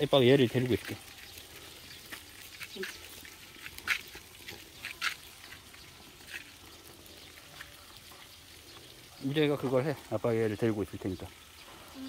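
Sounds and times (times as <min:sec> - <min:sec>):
goat crunching a carrot: 0:00.8 - 0:07.8.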